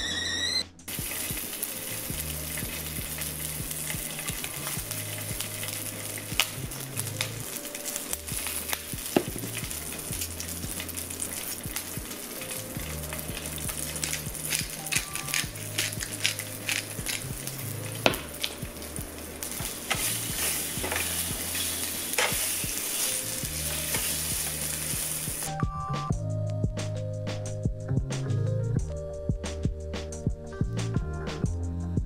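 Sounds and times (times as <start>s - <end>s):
stirring clicks and taps: 0.9s - 22.8s
food sizzling in a pan: 0.9s - 25.6s.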